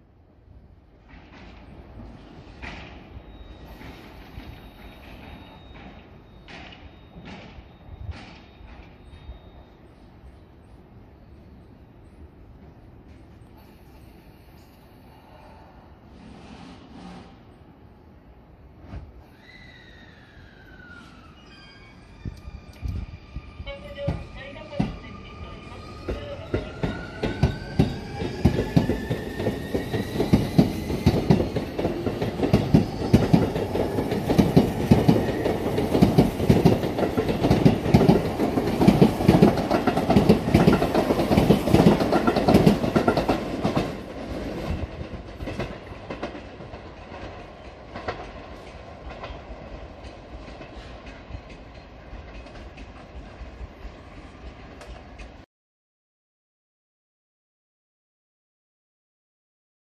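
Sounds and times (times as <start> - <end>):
wheels clicking over rail joints: 26.1 - 55.4.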